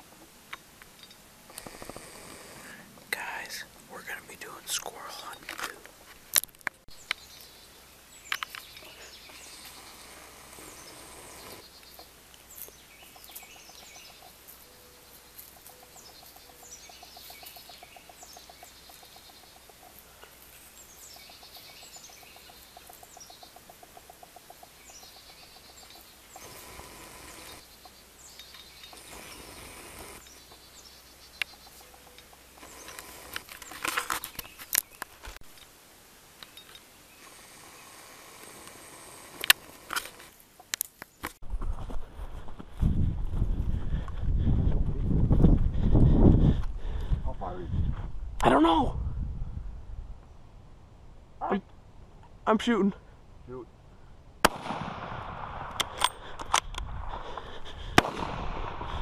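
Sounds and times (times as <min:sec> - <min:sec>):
songbirds chirping: 0:00.0 - 0:41.4
low pulsing bird trill: 0:07.0 - 0:33.3.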